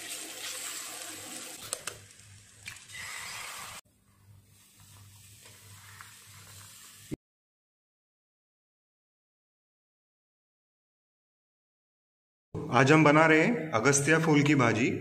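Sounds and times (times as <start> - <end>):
food sizzling in oil: 0.0 - 3.8, 4.6 - 7.2.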